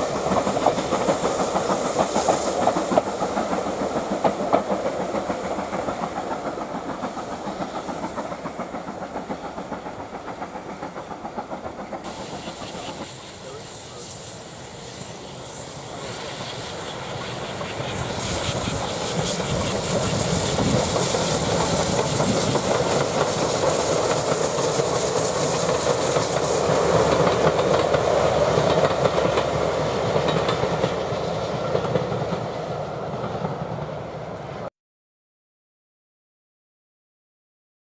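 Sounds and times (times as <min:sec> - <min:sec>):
steam train passing: 0:00.0 - 0:34.7
wheels clicking over rail joints: 0:17.6 - 0:32.6.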